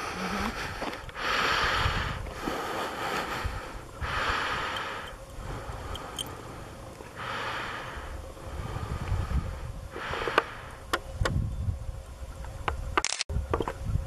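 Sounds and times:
person breathing: 0.0 - 10.9.

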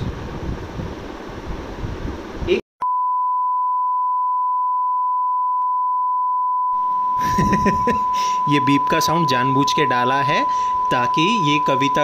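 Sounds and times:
steady censor beep tone: 2.8 - 12.0.

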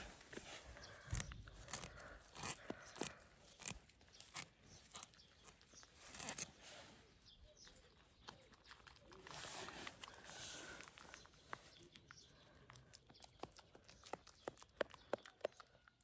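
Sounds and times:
goat biting and chewing grass: 0.0 - 16.0.

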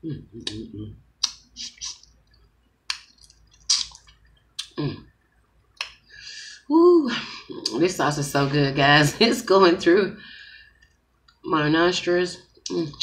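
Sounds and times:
wet chewing and lip smacking: 1.2 - 4.8.

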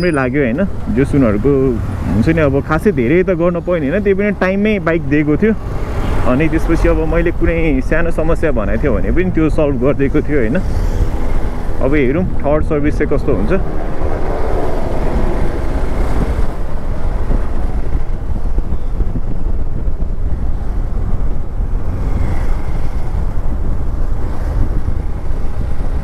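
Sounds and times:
wind buffeting microphone: 0.2 - 26.0
motorcycle engine: 10.0 - 18.9.

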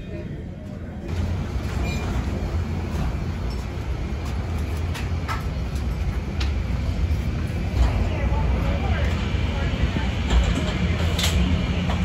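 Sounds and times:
ventilation and ground machinery rumble: 0.0 - 12.0.

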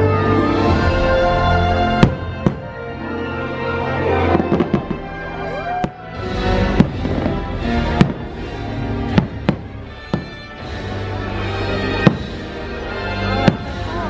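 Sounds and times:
orchestral music: 0.0 - 14.0
fireworks bangs: 1.8 - 2.9, 4.2 - 14.0.

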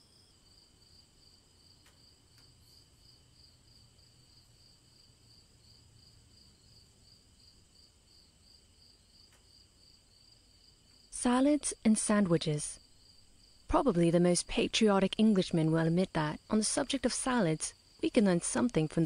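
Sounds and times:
faint crickets chirping: 0.0 - 19.0.

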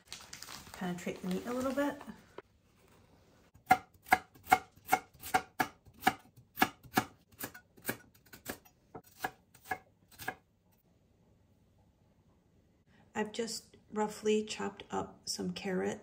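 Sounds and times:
knife chopping on wooden board: 3.6 - 10.4.

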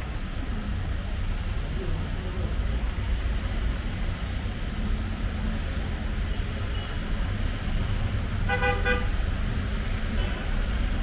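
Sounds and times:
street traffic rumble: 0.0 - 11.0
vehicle horn: 8.5 - 9.2.

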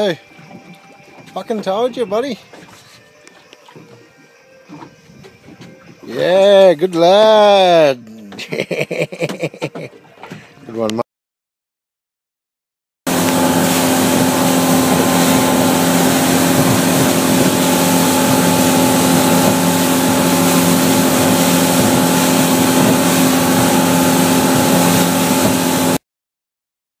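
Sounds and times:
motorboat engine hum: 0.0 - 11.0, 13.1 - 26.0
wind: 0.0 - 11.0, 13.1 - 26.0
rush of water spray: 13.1 - 26.0.

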